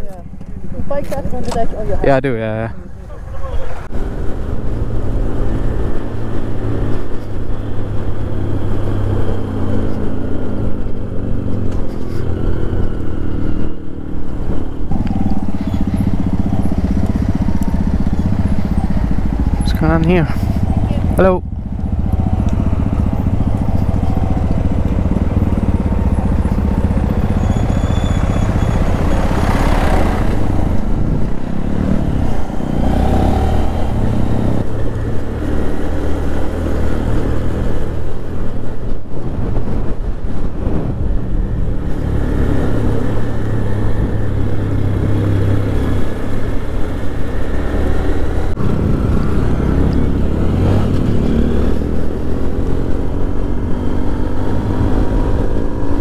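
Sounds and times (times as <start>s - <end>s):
motorcycle engine running: 0.0s - 1.9s, 14.0s - 38.7s.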